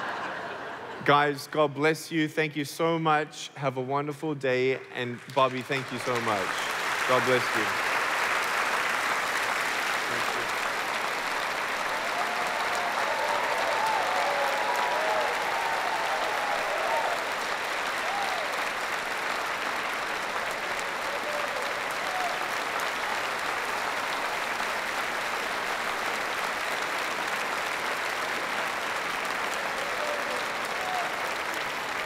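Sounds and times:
crowd applauding: 0:00.0 - 0:01.0, 0:05.0 - 0:32.0
voices cheering: 0:11.9 - 0:19.0, 0:20.4 - 0:23.3, 0:29.5 - 0:32.0.

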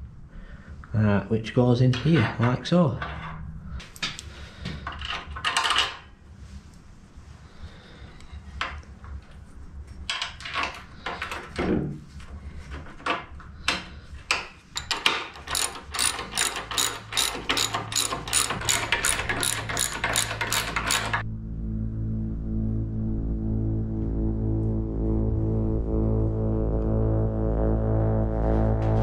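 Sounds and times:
ratchet spanner clicking: 0:14.8 - 0:21.2.

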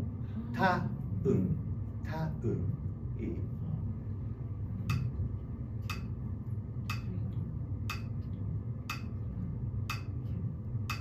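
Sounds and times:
metronome clicking: 0:05.9 - 0:06.1, 0:06.9 - 0:07.1, 0:08.9 - 0:09.1, 0:09.9 - 0:10.1.

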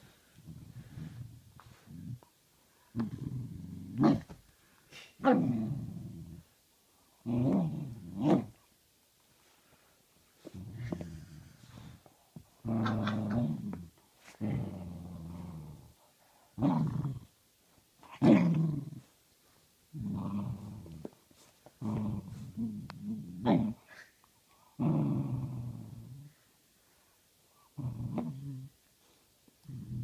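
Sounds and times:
dogs growling: 0:12.6 - 0:16.0.

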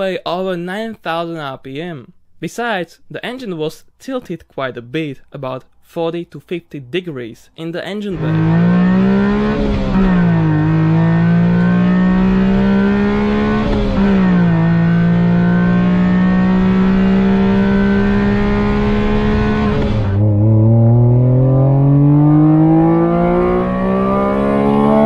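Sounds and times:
car engine accelerating: 0:08.1 - 0:25.0.

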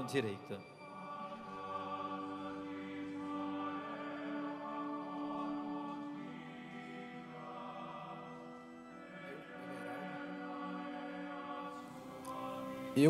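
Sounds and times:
background music: 0:00.0 - 0:13.0
soft choral singing: 0:00.0 - 0:13.0.

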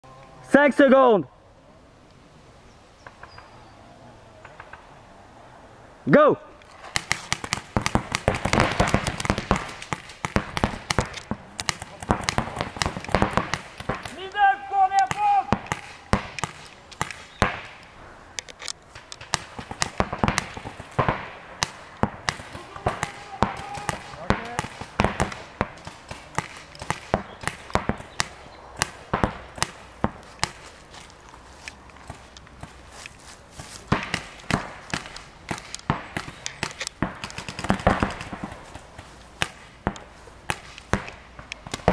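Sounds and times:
paintball markers firing: 0:06.9 - 0:31.1, 0:33.9 - 0:41.9.

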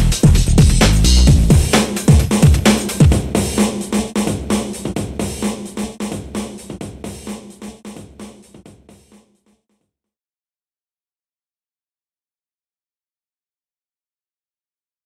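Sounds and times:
electronic music with drum beat: 0:00.0 - 0:09.2.

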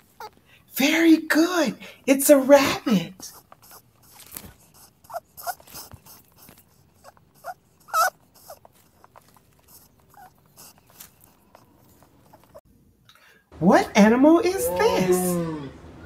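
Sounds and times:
rabbit squeaking: 0:00.0 - 0:00.4, 0:03.2 - 0:12.6.

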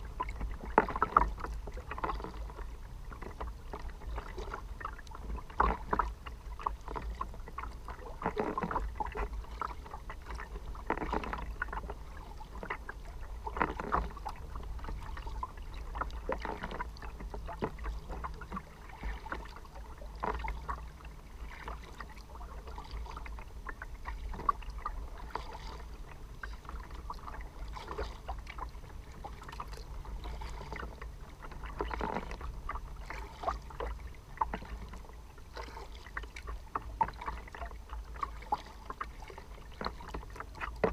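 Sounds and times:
paddle strokes splashing: 0:00.0 - 0:40.9
water slapping against hull: 0:00.0 - 0:40.9.

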